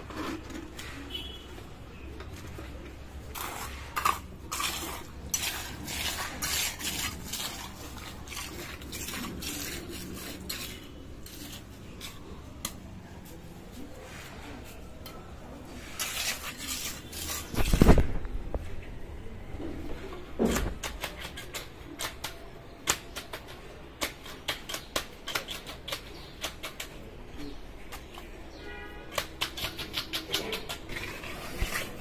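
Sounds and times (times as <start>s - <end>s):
trowel scraping wet concrete: 3.2s - 14.8s, 15.5s - 18.2s, 20.4s - 22.3s, 22.9s - 27.1s, 29.1s - 32.0s.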